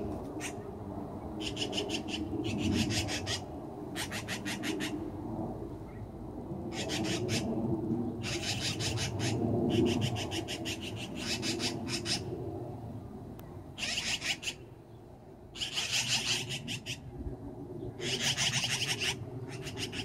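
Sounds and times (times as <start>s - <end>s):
steady low rumble: 0.0s - 13.8s
magpies rattling chatter calls: 0.4s - 0.6s, 1.4s - 5.0s, 6.7s - 7.5s, 8.2s - 12.3s, 13.8s - 14.7s, 15.6s - 17.0s, 18.0s - 20.0s.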